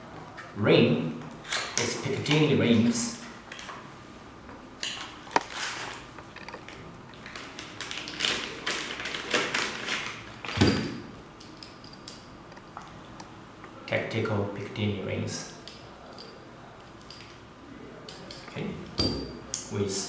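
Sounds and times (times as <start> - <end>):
plastic bag crinkling: 5.4 - 10.5.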